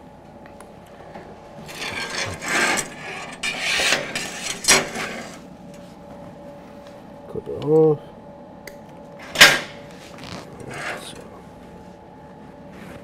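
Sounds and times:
steel scraping against steel: 1.6 - 5.5, 10.6 - 11.2.

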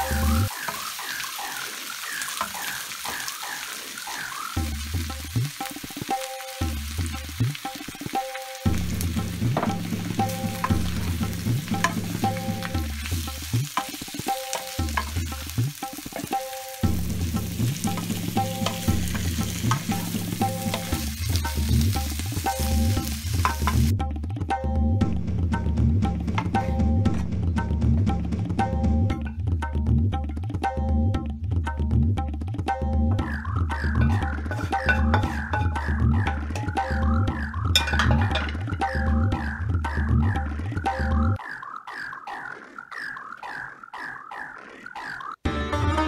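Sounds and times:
instrumental background music: 0.0 - 1.0, 4.3 - 41.4, 45.4 - 46.0
potatoes sizzling in oil: 0.0 - 23.9.

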